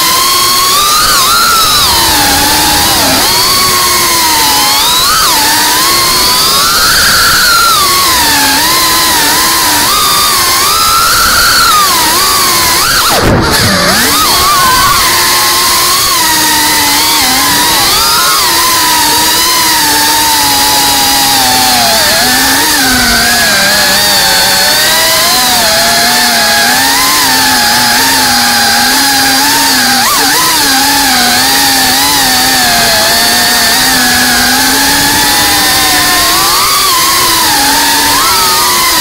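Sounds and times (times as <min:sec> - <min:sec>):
quadcopter motors buzzing: 0:00.0 - 0:39.0.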